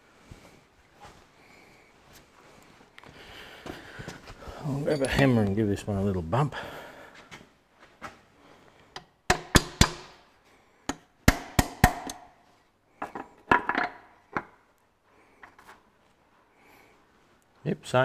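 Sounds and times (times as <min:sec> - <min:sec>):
light metal taps and clinks: 0:04.8 - 0:05.6.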